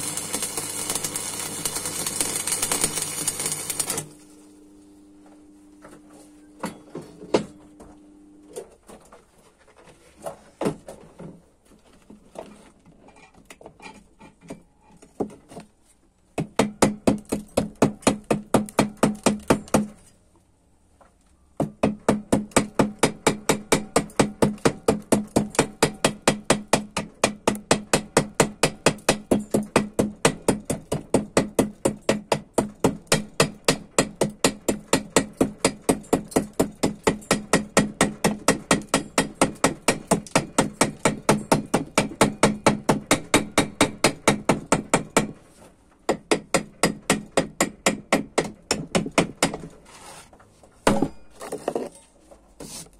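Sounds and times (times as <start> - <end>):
chipping hammer striking metal: 16.4 - 20.0, 21.6 - 45.4, 46.1 - 49.6, 50.9 - 51.4.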